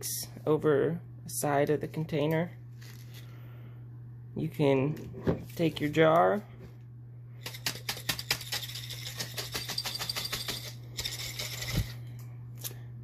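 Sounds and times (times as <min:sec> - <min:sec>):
grain rattling in glass jar: 0:08.2 - 0:11.9.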